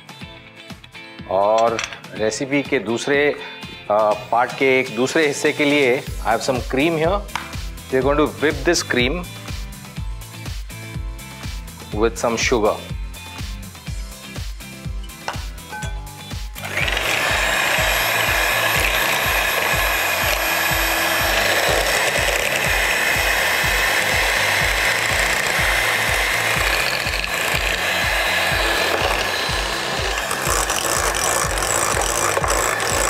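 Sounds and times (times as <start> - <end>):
electric hand mixer running: 16.2 - 33.0.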